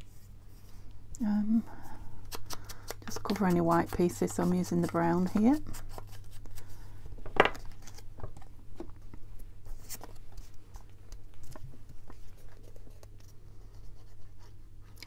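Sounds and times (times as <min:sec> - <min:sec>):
paper rustling: 0:07.4 - 0:09.0, 0:09.6 - 0:14.6.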